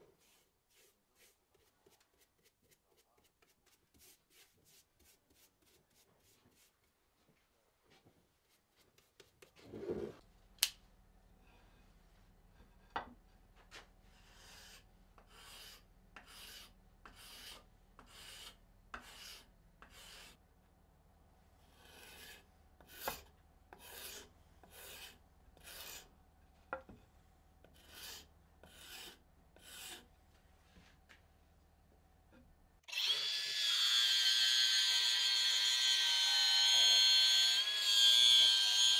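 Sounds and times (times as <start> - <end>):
hand tool rasping on wood: 21.8 - 26.0, 27.7 - 30.0.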